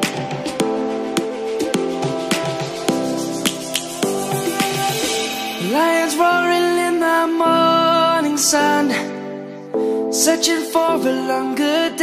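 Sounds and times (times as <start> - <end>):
sharp clap-like hits: 3.4 - 5.2.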